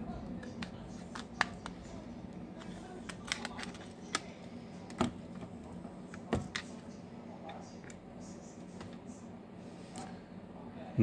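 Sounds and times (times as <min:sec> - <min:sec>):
low steady hum: 0:00.0 - 0:11.0
plastic phone cover clips snapping: 0:03.1 - 0:04.3.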